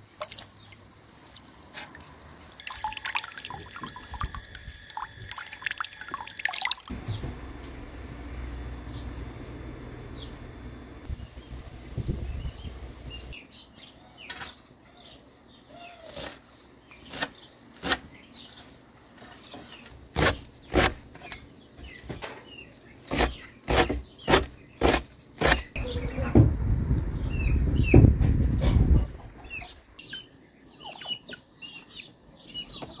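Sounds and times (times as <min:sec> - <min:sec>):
birds chirping faintly: 0:08.3 - 0:26.3.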